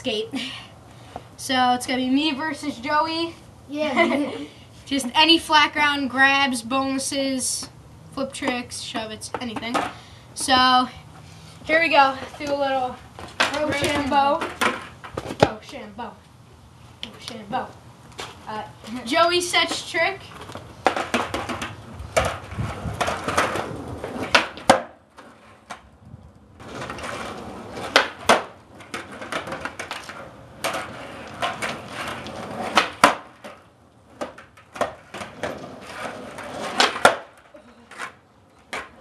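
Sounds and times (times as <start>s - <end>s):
skateboard wheels rolling on concrete: 0.0s - 39.0s
skateboard clacking on landing: 8.3s - 10.8s, 11.7s - 16.0s, 17.0s - 25.9s, 26.6s - 39.0s.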